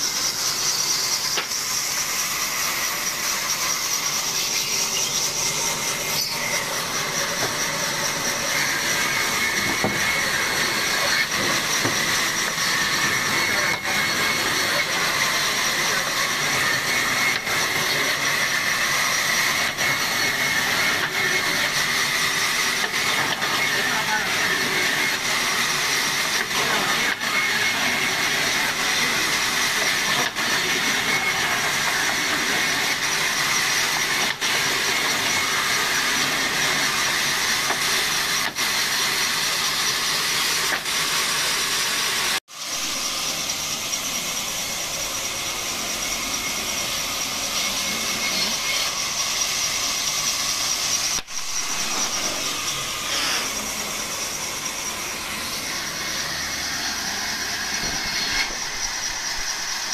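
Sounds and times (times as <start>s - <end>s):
band saw cutting timber: 0.0s - 59.9s.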